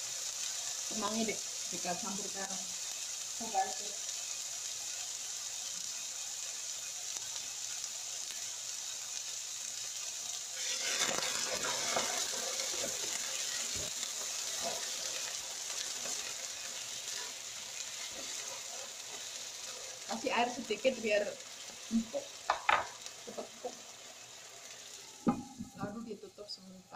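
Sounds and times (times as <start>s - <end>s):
vegetables sizzling in a wok: 0.0s - 26.9s
stirring scrapes and knocks on wok: 10.6s - 15.3s.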